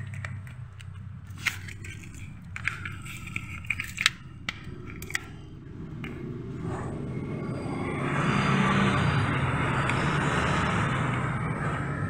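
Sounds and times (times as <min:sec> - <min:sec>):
tools clicking and scraping on parts: 0:00.0 - 0:06.2.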